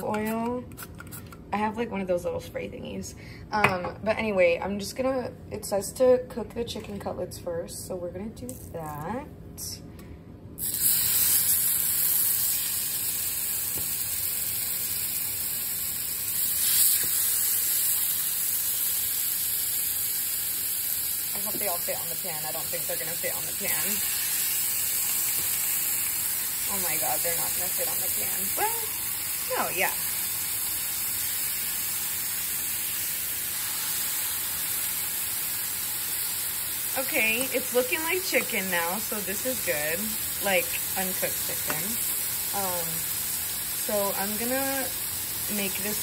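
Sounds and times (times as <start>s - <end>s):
chicken sizzling in a frying pan: 10.6s - 46.0s.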